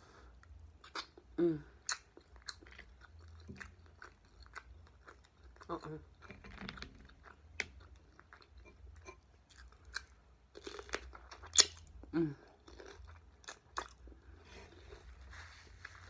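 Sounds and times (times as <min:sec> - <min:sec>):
crunchy chewing of cucumber: 0:00.8 - 0:15.2
wet mouth clicks: 0:11.5 - 0:11.8.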